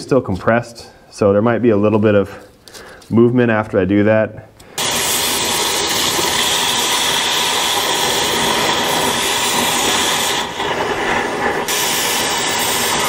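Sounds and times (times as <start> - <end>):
cutting torch hissing: 4.7 - 13.0.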